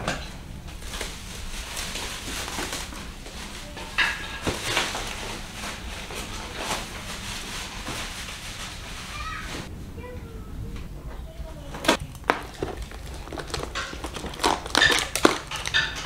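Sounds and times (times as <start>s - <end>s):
plastic wrap crinkling: 0.2s - 9.7s, 11.8s - 16.0s.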